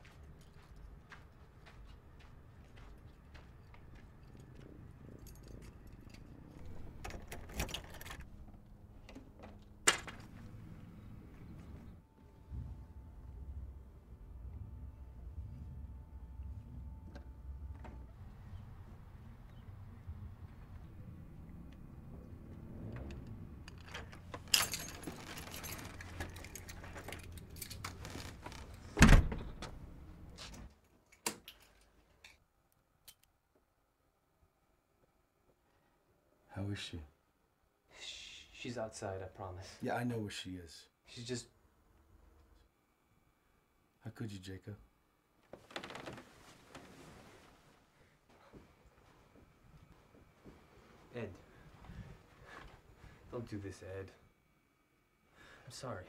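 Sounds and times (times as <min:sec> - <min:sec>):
low steady hum: 0:00.0 - 0:30.6
rustling and clinking handling: 0:03.7 - 0:08.6, 0:23.6 - 0:28.6
rustling: 0:45.5 - 0:49.3.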